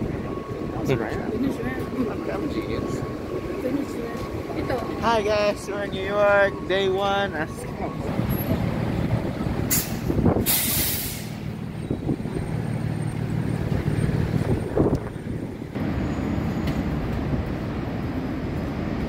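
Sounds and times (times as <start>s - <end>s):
heavy engines rumbling: 0.0s - 19.0s
air brakes hissing: 9.6s - 11.5s.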